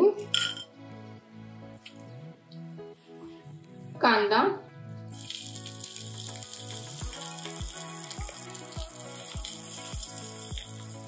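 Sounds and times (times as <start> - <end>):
onions sizzling in hot oil: 5.1 - 11.0
background music with drum beat: 7.0 - 11.0.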